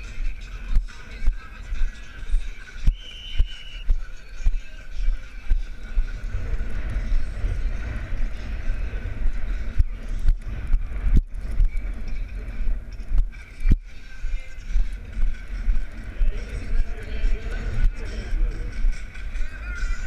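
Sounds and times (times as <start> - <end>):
hoofbeats on soft dirt: 0.0 - 19.5
wind buffeting microphone: 0.0 - 20.0.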